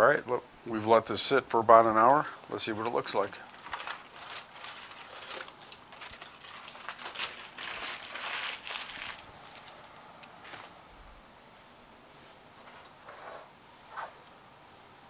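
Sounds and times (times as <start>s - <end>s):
aluminum foil crinkling: 2.0s - 10.8s.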